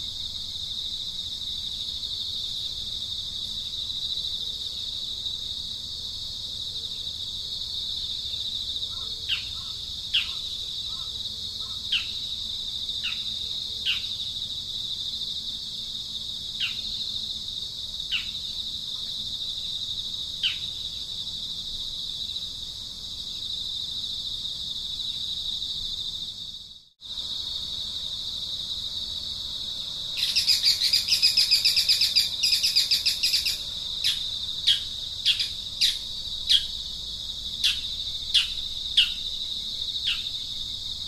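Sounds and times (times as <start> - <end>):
high-pitched insect drone: 23.2 - 41.0
bird chirping: 30.2 - 36.7, 37.6 - 39.2.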